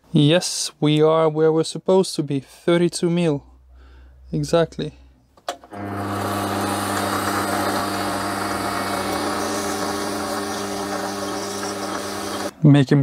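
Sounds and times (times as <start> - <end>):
metal lathe running: 5.7 - 12.5.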